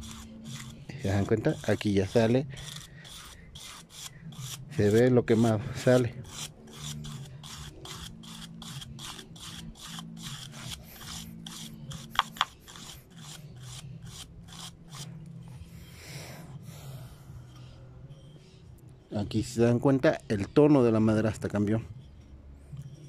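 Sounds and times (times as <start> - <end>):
sharper scrapes: 0.0 - 15.1
stiff brush scrubbing wood: 0.0 - 15.1.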